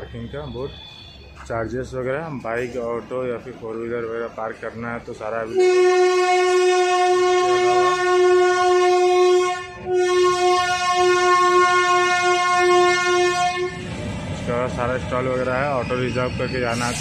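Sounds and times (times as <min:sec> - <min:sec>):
train horn blasts: 0:05.4 - 0:13.9.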